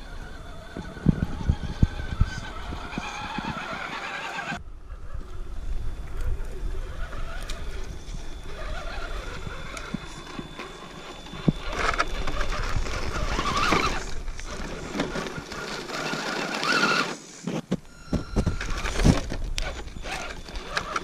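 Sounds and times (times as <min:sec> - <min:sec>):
electric motor and gearbox whining: 0:00.0 - 0:21.0
tyres crunching over gravel: 0:05.9 - 0:21.0.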